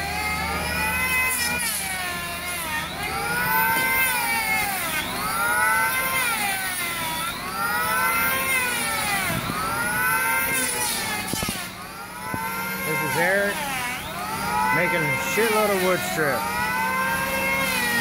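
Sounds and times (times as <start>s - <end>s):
power planer whining on wood: 0.0s - 18.0s.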